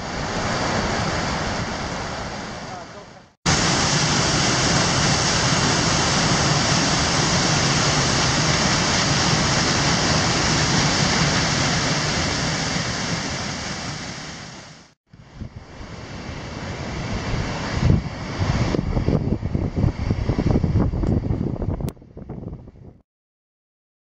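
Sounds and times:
faint falling water: 2.8s - 15.0s.

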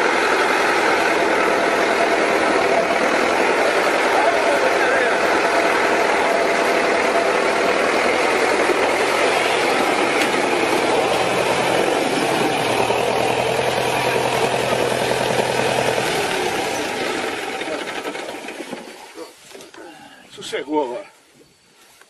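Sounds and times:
tractor engine clattering: 0.0s - 19.3s
people's voices: 1.9s - 11.8s.

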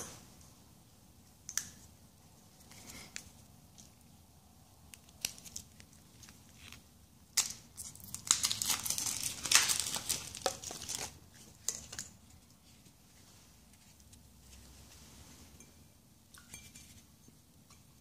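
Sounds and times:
plastic wrapper crinkling: 7.4s - 12.1s.

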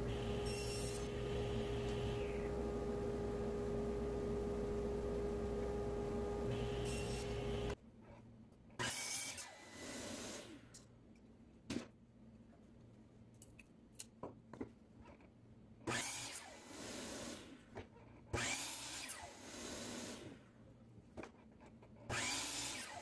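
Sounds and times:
miter saw cutting wood: 0.0s - 2.8s, 6.3s - 7.8s.

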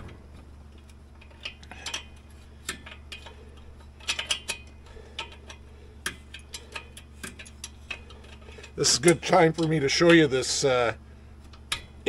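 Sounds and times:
steady low hum: 0.0s - 12.0s
wrench clicking on metal nuts: 4.0s - 10.3s.

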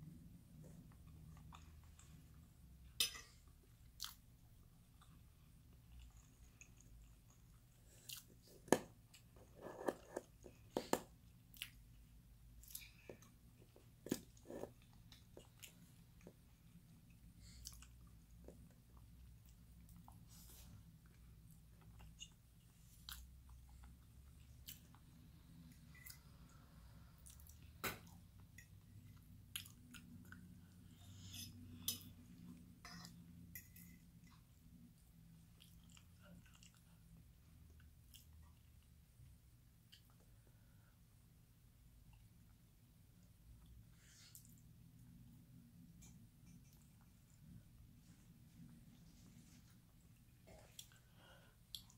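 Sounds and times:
person chewing: 4.9s - 12.0s, 12.6s - 26.4s, 27.2s - 38.8s, 50.0s - 51.9s.

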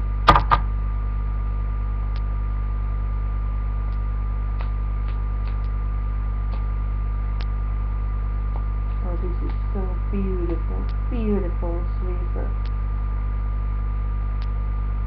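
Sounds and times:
electrical mains hum: 0.0s - 15.0s
faint high whine: 0.0s - 15.0s.

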